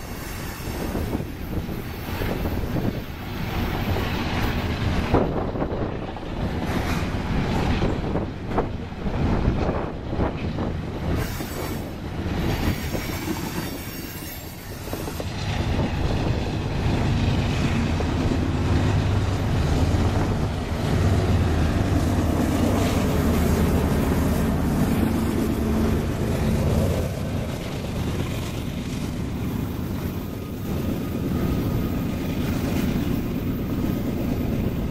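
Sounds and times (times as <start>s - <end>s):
diesel locomotive approaching: 0.0s - 34.9s
diesel locomotive engine drone: 0.0s - 34.9s
train wheels rolling on rails: 0.0s - 34.9s
high wheel squeal: 11.1s - 15.3s.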